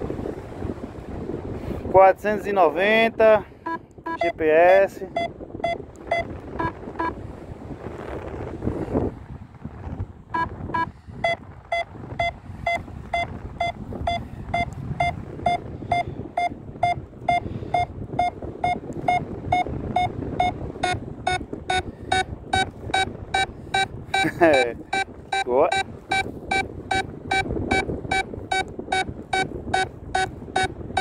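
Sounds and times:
faint wind noise: 0:00.0 - 0:31.0
variometer short electronic beeps: 0:03.7 - 0:04.4, 0:05.1 - 0:07.2, 0:10.4 - 0:31.0.

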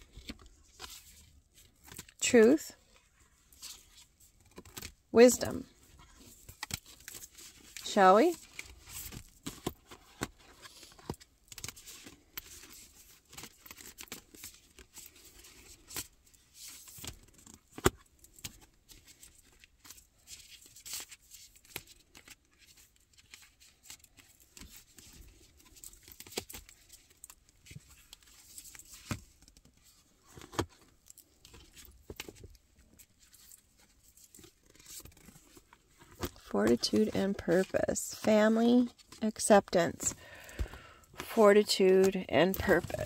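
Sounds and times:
cards being shuffled: 0:33.2 - 0:39.2.

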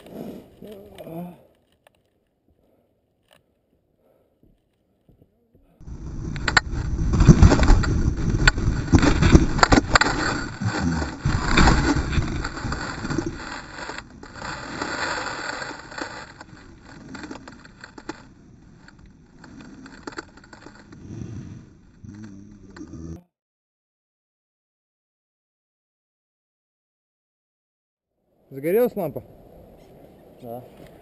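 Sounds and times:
scraping and clicks: 0:00.0 - 0:03.7, 0:05.8 - 0:23.0
mountain bike rattling over rocks: 0:05.8 - 0:21.2.

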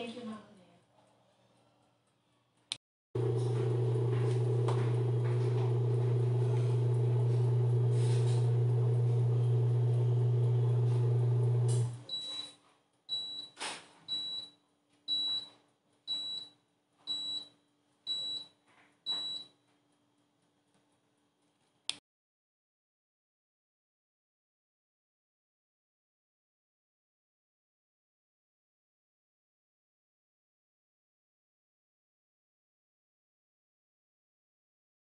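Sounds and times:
dishwasher humming: 0:03.2 - 0:12.1
dishwasher alarm beeps: 0:12.0 - 0:12.5, 0:13.1 - 0:14.5, 0:15.1 - 0:16.5, 0:17.1 - 0:17.5, 0:18.1 - 0:18.5, 0:19.1 - 0:19.5.

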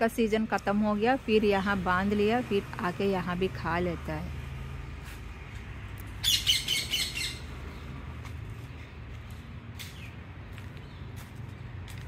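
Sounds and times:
parrot squawking: 0:06.2 - 0:07.5.

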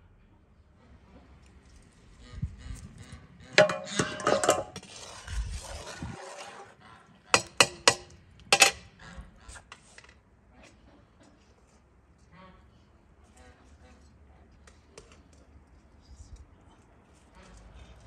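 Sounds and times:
metal spoon stirring in pot: 0:03.5 - 0:06.7, 0:07.4 - 0:08.8.

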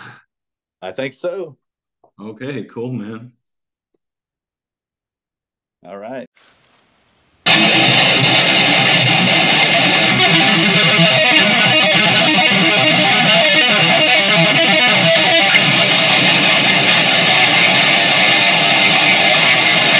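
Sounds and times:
heavy metal music: 0:07.5 - 0:19.9.

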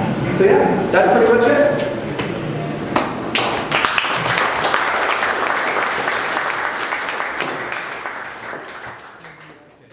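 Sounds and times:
audience applauding: 0:03.3 - 0:09.8.

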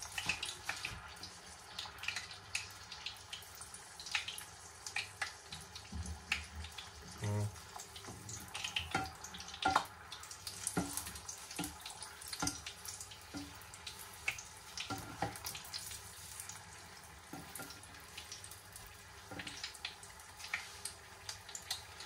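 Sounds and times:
deep-frying sizzle with pops: 0:00.0 - 0:22.0
spatula knocking in pan: 0:08.8 - 0:09.9, 0:10.6 - 0:13.6, 0:14.3 - 0:15.6, 0:17.3 - 0:17.8.

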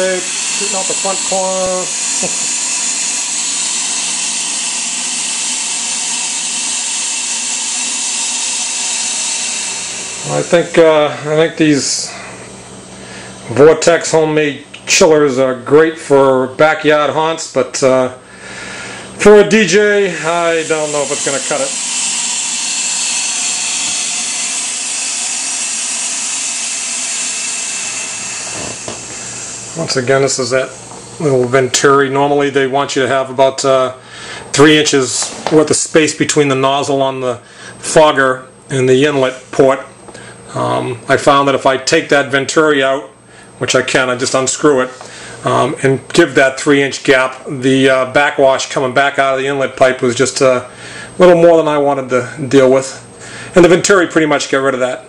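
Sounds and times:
fog machine hissing: 0:00.0 - 0:12.4, 0:18.6 - 0:32.4
faint steady hum: 0:00.0 - 0:55.0.

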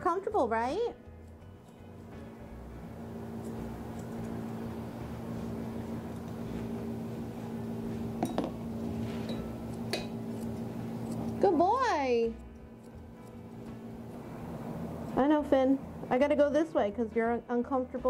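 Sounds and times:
scissors snipping fur: 0:01.0 - 0:02.5, 0:03.3 - 0:04.7, 0:05.8 - 0:06.8, 0:08.5 - 0:14.3
low steady hum: 0:01.2 - 0:18.0.

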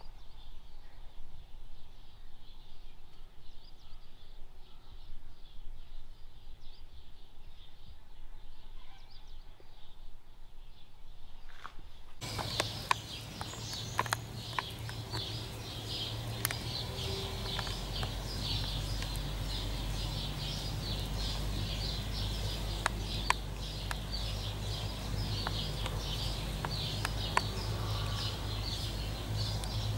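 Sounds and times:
sharp clicks: 0:12.2 - 0:20.2, 0:20.8 - 0:29.9
low steady hum: 0:12.2 - 0:29.9.

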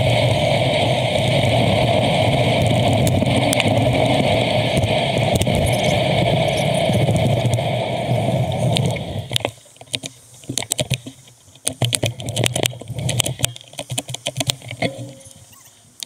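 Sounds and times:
sharp clicks and rattles: 0:02.5 - 0:07.7, 0:08.4 - 0:16.0.

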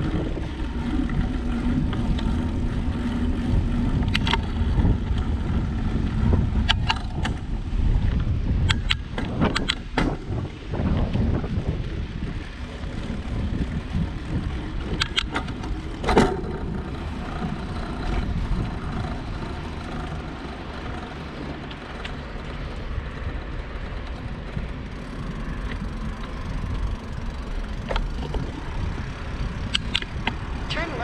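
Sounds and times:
bicycle riding rumble: 0:00.0 - 0:31.0
sharp clicks: 0:08.6 - 0:10.0, 0:14.9 - 0:15.5, 0:29.6 - 0:30.4.

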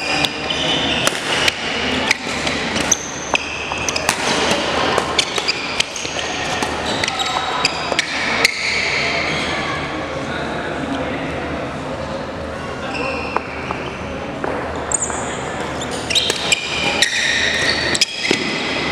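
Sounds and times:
shoe squeaks on floor: 0:00.0 - 0:01.0, 0:02.1 - 0:04.2, 0:05.1 - 0:09.7, 0:12.8 - 0:14.1, 0:14.9 - 0:18.6
racket striking shuttlecock: 0:01.0 - 0:07.1, 0:16.2 - 0:17.2.

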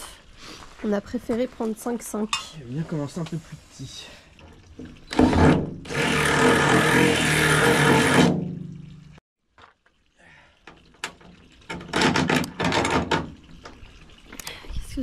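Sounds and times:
power drill boring through sheet metal: 0:05.1 - 0:08.4.

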